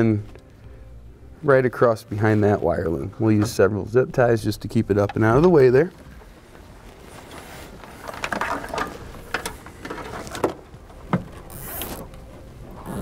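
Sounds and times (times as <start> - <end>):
plastic loom handling: 6.0 - 13.0
zip ties ratcheting: 11.4 - 12.1.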